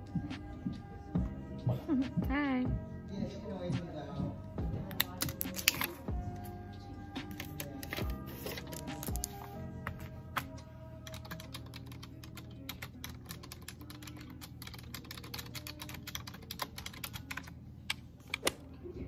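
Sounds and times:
fast typing on keyboard: 11.0 - 17.5.

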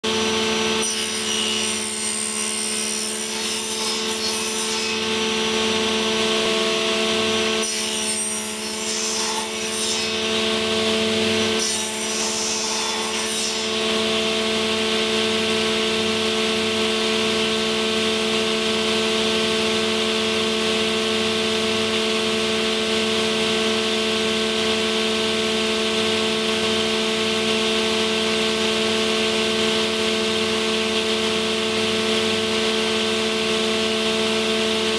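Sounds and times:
circular saw running: 0.0 - 34.9
saw cutting board rough rasp: 0.4 - 6.7, 7.5 - 14.3.

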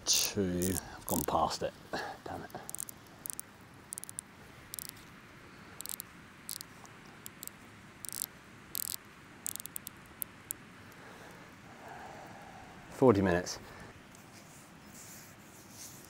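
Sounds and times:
faint steady hiss: 0.0 - 16.0
wood fire crackling and popping: 0.6 - 1.5.

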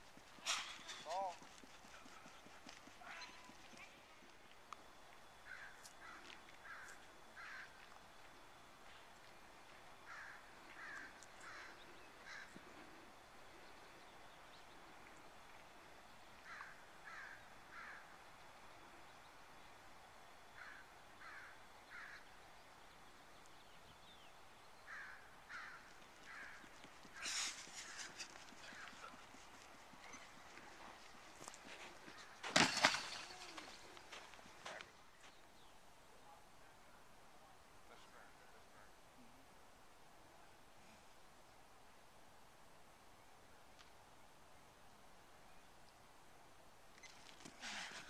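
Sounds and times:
faint bird calls: 0.4 - 19.8, 20.5 - 32.4.

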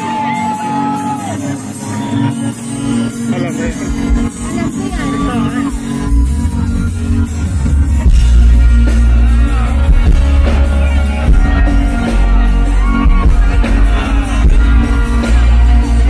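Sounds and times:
electric guitars: 0.0 - 16.0
rock band playing live: 0.0 - 16.0
heavy bass and drums: 3.8 - 16.0.

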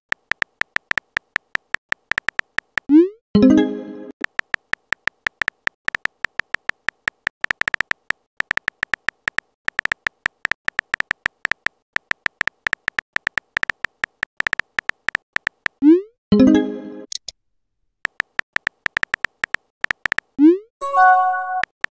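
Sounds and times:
phone keyboard typing clicks: 0.1 - 2.9, 4.2 - 15.8, 18.1 - 20.4.

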